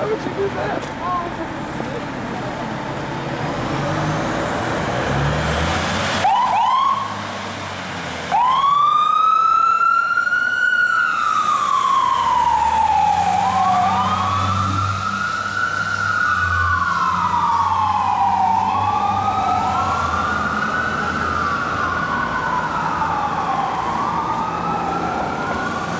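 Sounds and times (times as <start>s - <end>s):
fire engine diesel rumbling: 0.0s - 25.9s
siren chirps: 6.2s - 7.2s, 8.3s - 25.9s
siren wailing: 6.2s - 7.2s, 8.3s - 25.9s.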